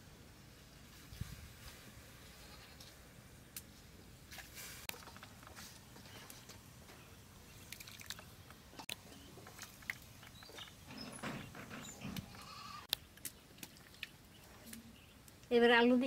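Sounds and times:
goat bleating: 12.3 - 12.9.

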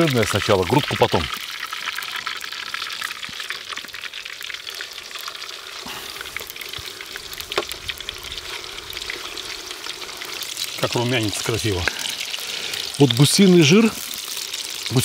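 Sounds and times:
meat sizzling in fat: 0.0 - 15.0.

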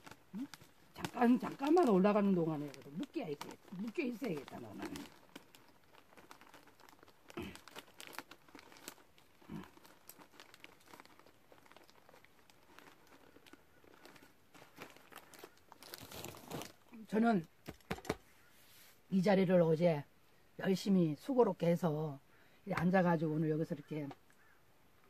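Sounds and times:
plastic bag crinkling: 0.0 - 18.2.

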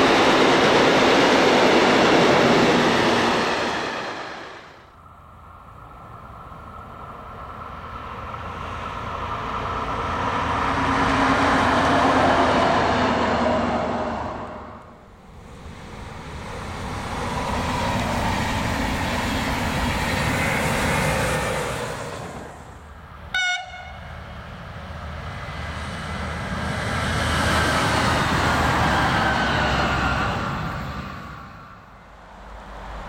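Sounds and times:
train rumbling past: 0.0 - 33.0
train horn toot: 23.3 - 24.1.

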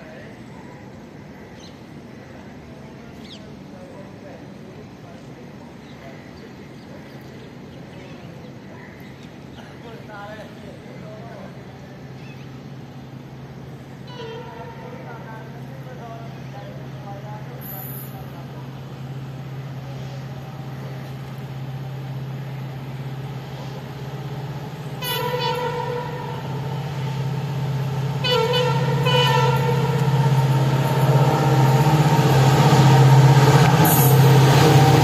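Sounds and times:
diesel locomotive engine drone: 0.0 - 35.0
train horn toots: 14.1 - 15.0, 25.0 - 26.8, 28.1 - 31.0.

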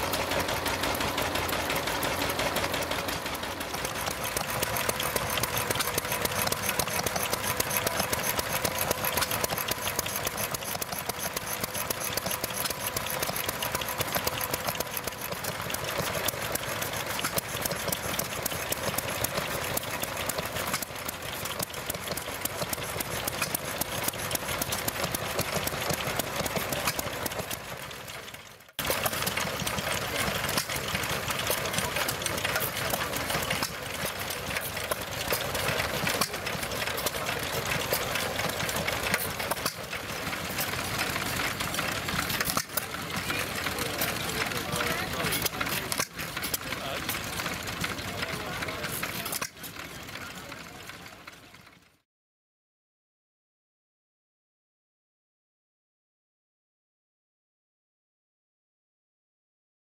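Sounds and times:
stationary engines running: 0.0 - 52.0.

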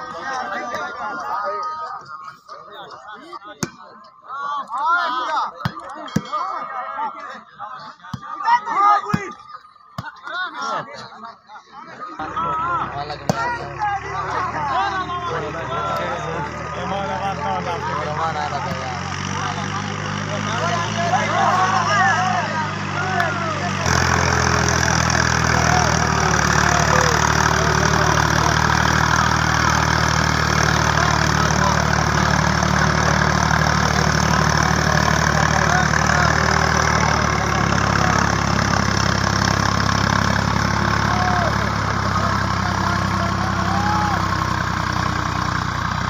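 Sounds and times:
tractor diesel engine running: 12.1 - 46.0.

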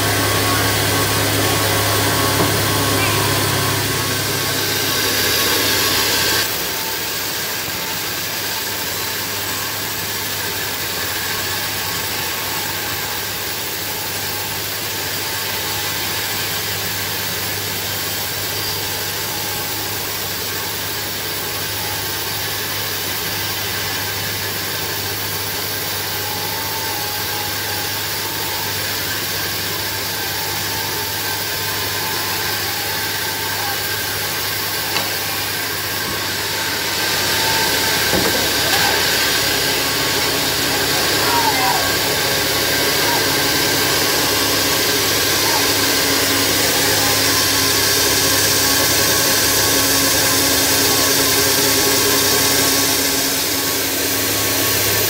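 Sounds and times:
drive motor hum: 0.0 - 6.5
band sawmill sawing log: 0.0 - 55.0.

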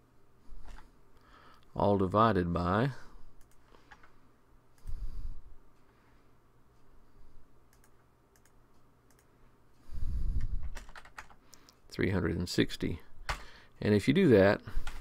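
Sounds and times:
computer mouse clicks: 3.4 - 4.1, 7.7 - 9.3.

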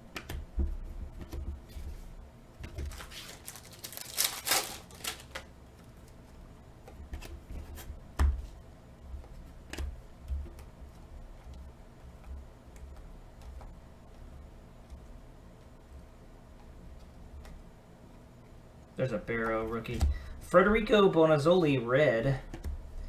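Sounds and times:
trading cards clicking and rustling: 2.6 - 5.5.

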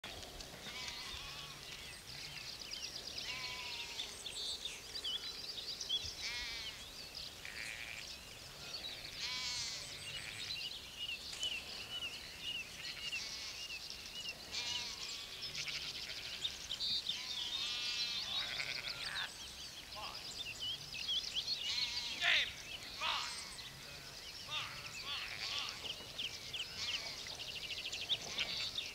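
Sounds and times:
sheep bleating: 0.6 - 2.4, 3.2 - 4.1, 6.2 - 6.8, 7.4 - 10.5, 12.8 - 13.7, 14.5 - 19.3, 21.6 - 25.9, 26.6 - 27.3.

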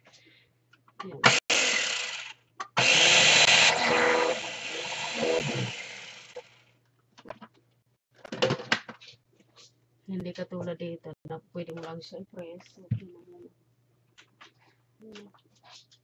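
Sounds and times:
food chopper motor whining: 1.2 - 6.6.

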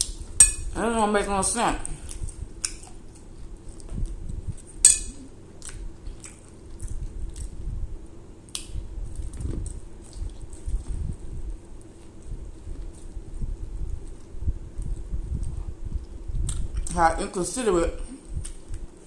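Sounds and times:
wet chewing and lip smacks: 1.9 - 7.7, 8.5 - 16.9, 18.2 - 19.0.

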